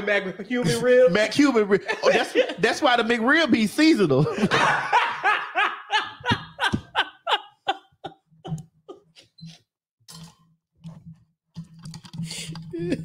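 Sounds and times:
woman laughing: 0:01.9 - 0:02.6, 0:04.3 - 0:09.4, 0:12.7 - 0:13.0.

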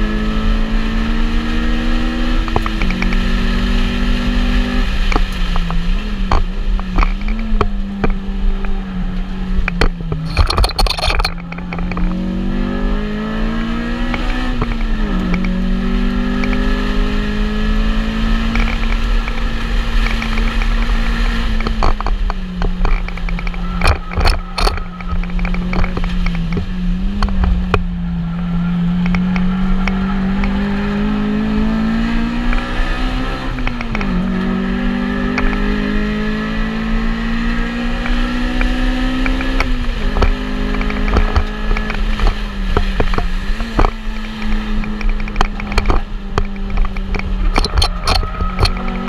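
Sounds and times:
car engine revving under load: 0:00.0 - 0:49.0
clicks and rattles: 0:05.1 - 0:08.8, 0:09.6 - 0:12.2, 0:21.5 - 0:27.8, 0:38.0 - 0:49.0.

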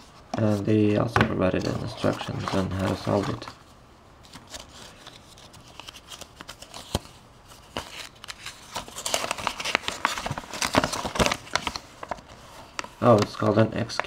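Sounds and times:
paper leaflet rustling: 0:01.5 - 0:03.6, 0:04.2 - 0:14.0
plastic wrapper crinkling: 0:04.3 - 0:14.0.

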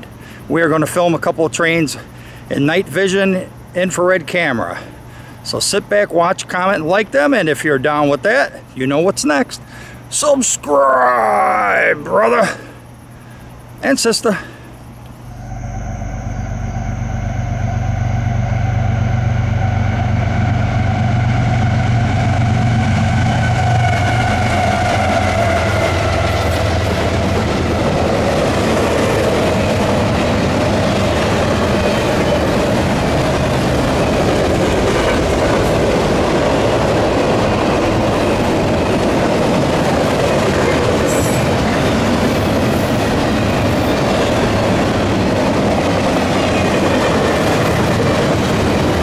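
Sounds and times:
diesel train engine drone: 0:00.0 - 0:49.0
train wheels clattering on rails: 0:23.0 - 0:49.0.

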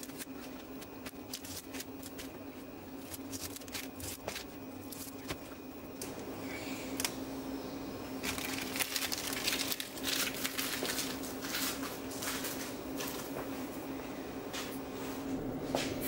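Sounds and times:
crackling and rustling handling noise: 0:00.0 - 0:06.2, 0:08.2 - 0:13.6
steady low hum: 0:00.0 - 0:16.0.

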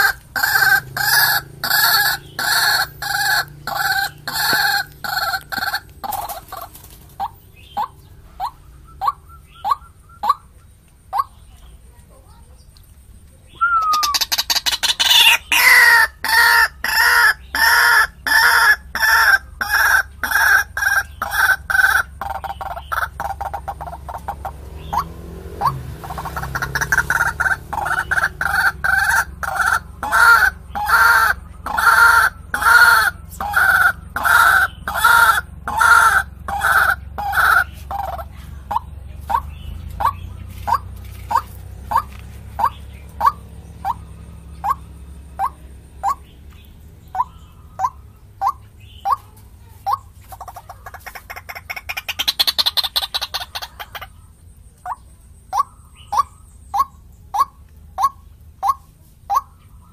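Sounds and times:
waterhen calling: 0:00.0 - 0:11.7, 0:13.5 - 0:59.9.

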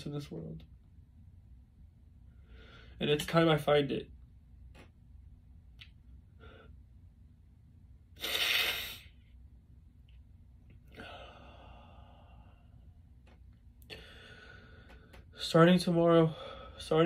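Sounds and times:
man breathing sharply: 0:02.3 - 0:03.0, 0:10.9 - 0:12.9, 0:13.9 - 0:15.4.

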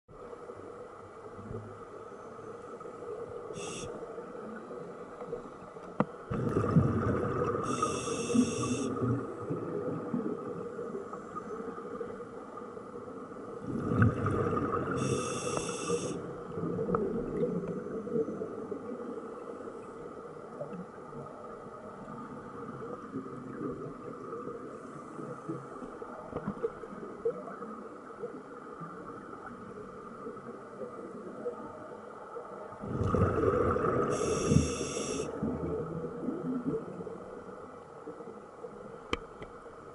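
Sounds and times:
steady underwater hum: 0:00.1 - 0:39.9
exhaled bubbles rushing: 0:06.3 - 0:08.0, 0:13.7 - 0:15.0, 0:32.8 - 0:34.2
diver breathing through regulator: 0:07.7 - 0:09.0, 0:14.9 - 0:16.2, 0:34.1 - 0:35.3.

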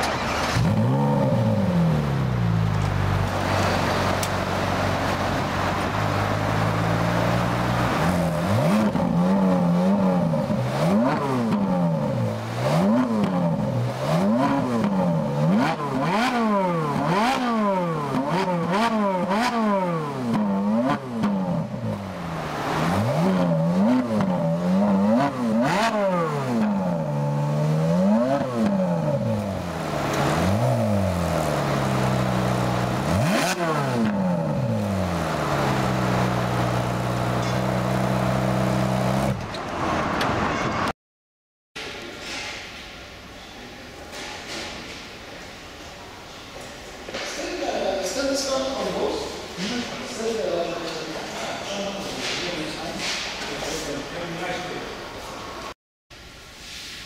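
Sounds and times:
car engine idling: 0:00.0 - 0:39.4
car engine revving: 0:00.0 - 0:40.2.

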